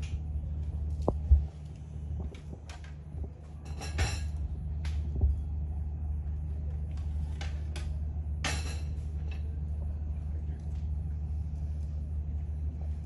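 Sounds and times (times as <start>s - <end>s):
steady low hum: 0.0s - 13.0s
dishes clinking on a table: 3.6s - 4.4s, 8.4s - 9.5s.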